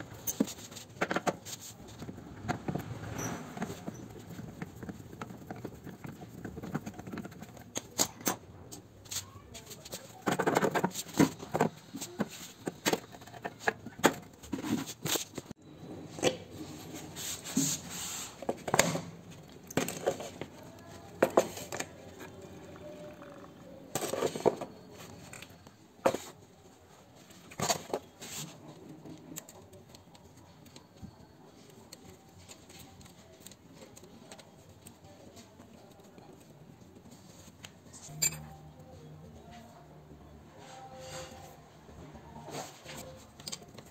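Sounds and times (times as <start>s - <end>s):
hands working on metal parts: 0.0s - 15.6s, 42.5s - 43.9s.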